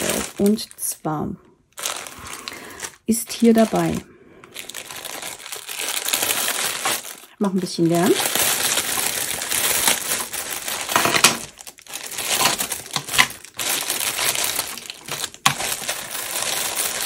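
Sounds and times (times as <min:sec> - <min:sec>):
packaging crinkling and rustling: 0:00.0 - 0:00.9, 0:01.7 - 0:17.0.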